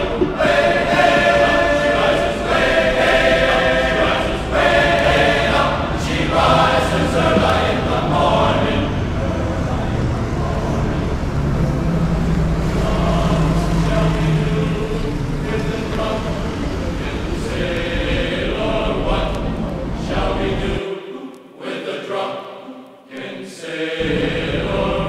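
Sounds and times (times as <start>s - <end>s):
bus engine humming: 0.0s - 20.8s, 24.0s - 25.0s
choir-like singing music: 0.0s - 25.0s.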